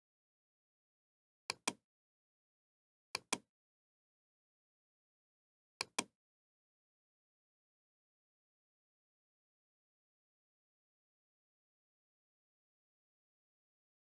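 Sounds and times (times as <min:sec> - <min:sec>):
computer mouse double clicks: 0:05.8 - 0:06.1.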